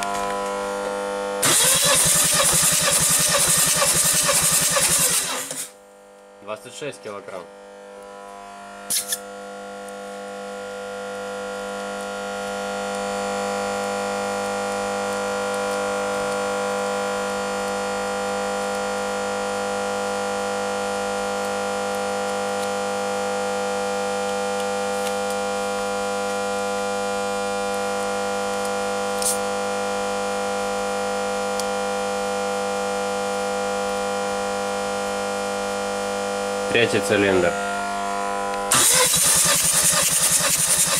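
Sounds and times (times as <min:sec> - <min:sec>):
steady multi-pitch drone: 0:32.2 - 0:40.9.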